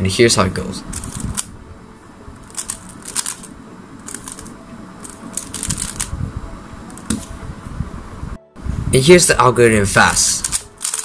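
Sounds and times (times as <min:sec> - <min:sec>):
puzzle cube plastic clicks: 0:01.0 - 0:01.5, 0:02.5 - 0:03.5, 0:04.1 - 0:06.1, 0:10.4 - 0:11.0.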